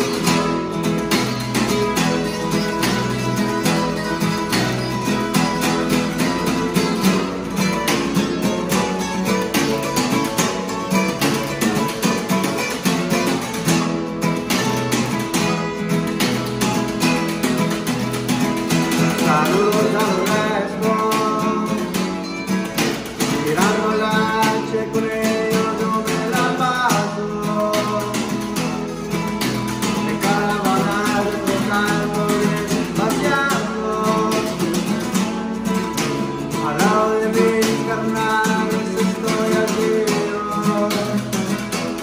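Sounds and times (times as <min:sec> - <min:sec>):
acoustic guitars playing: 0:00.0 - 0:42.0
person singing: 0:18.9 - 0:22.4, 0:23.0 - 0:28.9, 0:29.9 - 0:35.2, 0:36.5 - 0:42.0.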